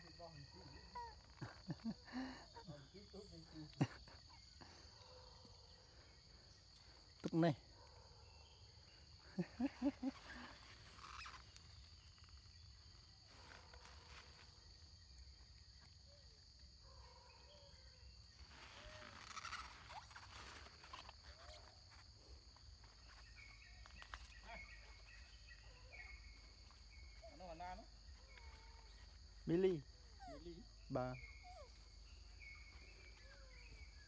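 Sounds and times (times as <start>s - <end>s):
high insect drone: 0.0s - 34.0s
monkeys squeaking softly: 0.1s - 4.7s, 9.4s - 12.8s, 18.4s - 34.0s.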